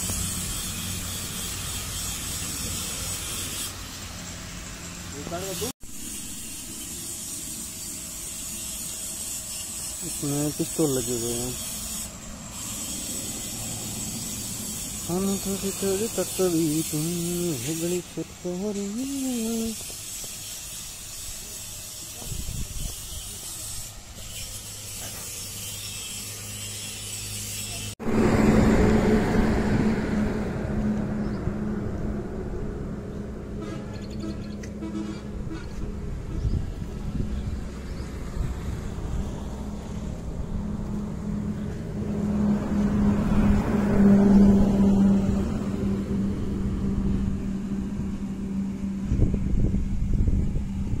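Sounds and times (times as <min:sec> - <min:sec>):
engine humming: 0:28.0 - 0:51.0.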